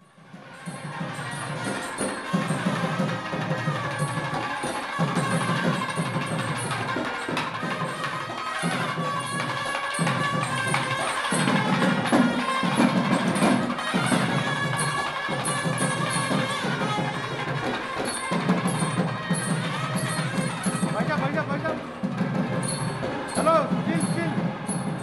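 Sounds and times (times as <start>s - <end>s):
traditional music with percussion: 0.0s - 25.0s.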